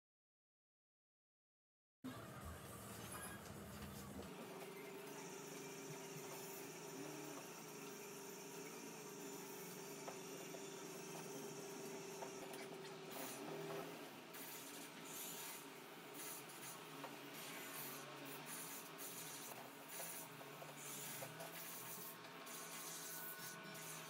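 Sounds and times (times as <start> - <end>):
paintbrush rubbing on canvas: 14.4 - 24.0.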